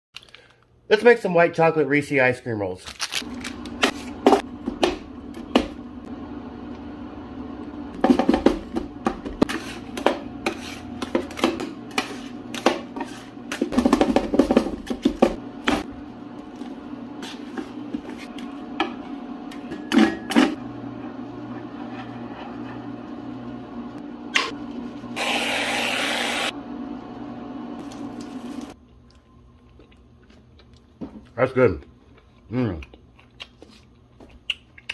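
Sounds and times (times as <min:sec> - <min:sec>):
spatulas scraping mixture: 0:09.2 - 0:15.3, 0:16.5 - 0:18.6, 0:21.4 - 0:23.1.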